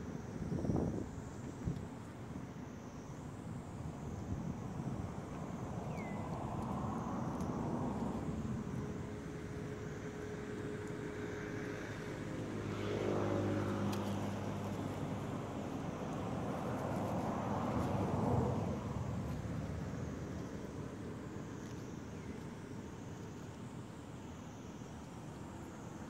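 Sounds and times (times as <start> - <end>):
outdoor background noise: 0.0 - 26.0
passing vehicle engine hum: 6.0 - 22.0.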